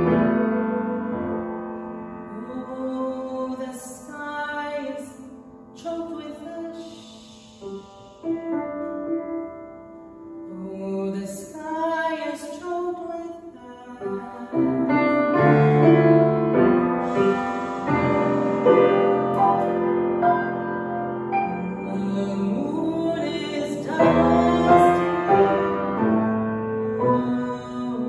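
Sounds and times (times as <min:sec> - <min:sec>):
grand piano accompaniment: 0:00.0 - 0:11.5, 0:14.0 - 0:28.0
woman singing long notes: 0:10.5 - 0:19.8, 0:21.4 - 0:25.7, 0:26.8 - 0:28.0.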